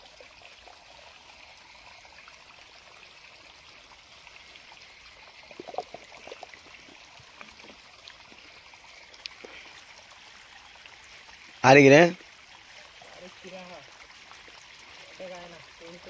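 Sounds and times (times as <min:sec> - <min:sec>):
small water splashes: 0:00.0 - 0:11.6.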